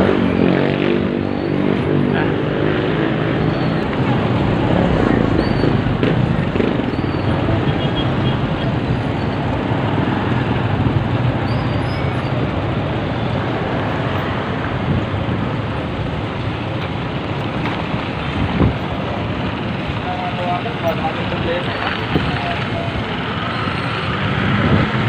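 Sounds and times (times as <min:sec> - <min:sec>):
street traffic: 0:00.0 - 0:25.0
wind on microphone: 0:18.1 - 0:19.6, 0:24.3 - 0:25.0.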